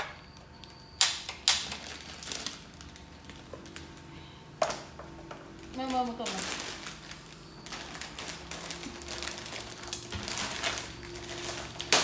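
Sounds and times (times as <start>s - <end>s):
plastic packet crinkling: 1.3s - 4.1s, 5.5s - 12.0s.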